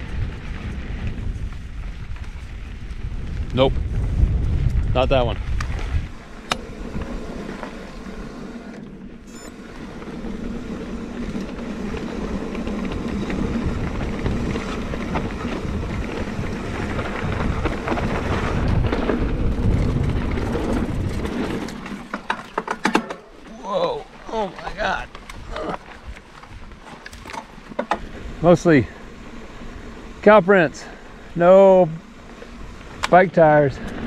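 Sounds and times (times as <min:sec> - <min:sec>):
wind on microphone: 0:00.0 - 0:08.8, 0:09.6 - 0:21.9
bike rattling and clicking: 0:00.0 - 0:34.0
bike tyres on dirt: 0:00.0 - 0:34.0.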